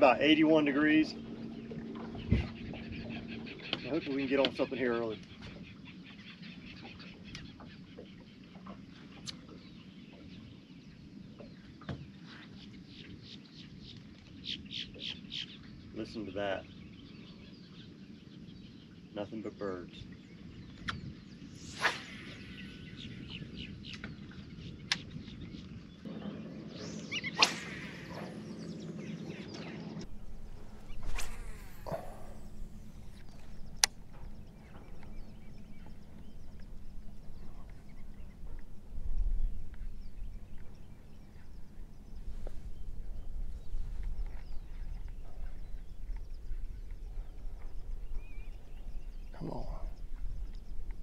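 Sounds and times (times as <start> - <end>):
birds chirping: 0.0 - 51.0
fishing rod swishing through air: 21.5 - 23.0, 26.9 - 28.5, 30.1 - 33.9
uneven low rumble: 25.5 - 51.0
high bird chirps: 26.7 - 38.6.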